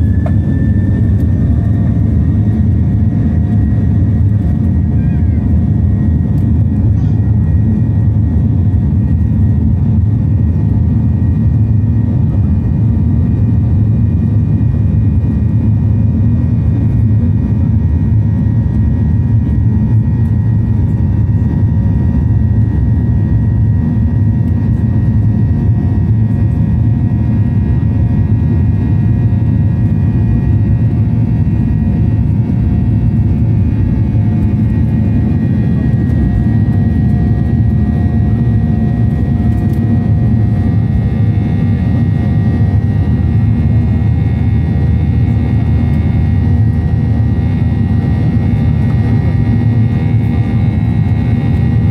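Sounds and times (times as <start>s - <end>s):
faint engine whine: 0.0s - 51.9s
jet engine deep rumble: 0.0s - 51.9s.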